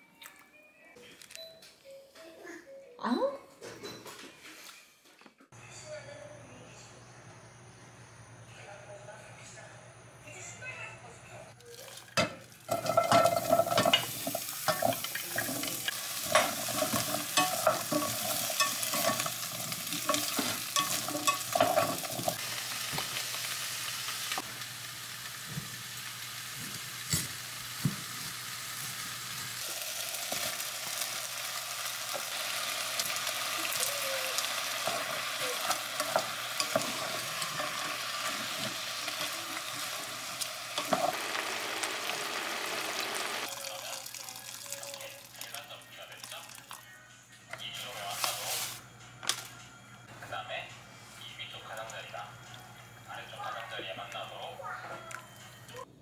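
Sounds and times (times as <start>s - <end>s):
frying sizzle: 11.9s - 46.6s
wooden spatula stirring clatter: 12.7s - 22.4s.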